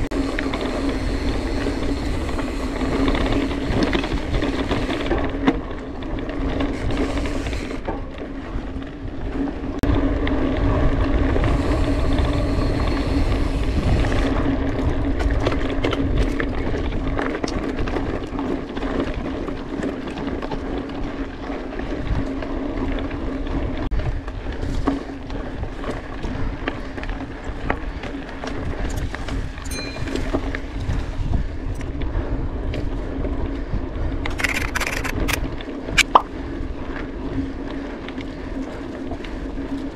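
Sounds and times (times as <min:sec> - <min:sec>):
steady buzz: 0:00.0 - 0:05.1, 0:11.2 - 0:14.4
bike rattling clicks: 0:00.0 - 0:20.8, 0:34.2 - 0:36.4
bike tyre noise: 0:00.0 - 0:39.9
wind rumbling on microphone: 0:00.0 - 0:39.9.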